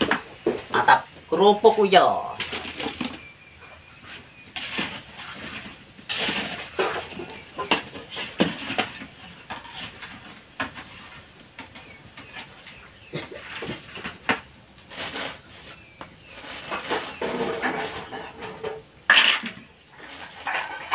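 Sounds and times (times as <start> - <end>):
crackers frying in hot oil: 0.0 - 20.9
metal spatula scraping a wok: 3.6 - 14.3, 14.9 - 20.9.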